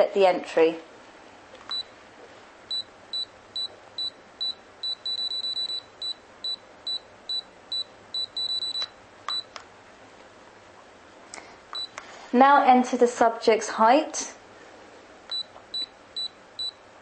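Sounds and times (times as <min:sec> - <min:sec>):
short high keypad beeps: 0:02.7 - 0:09.5.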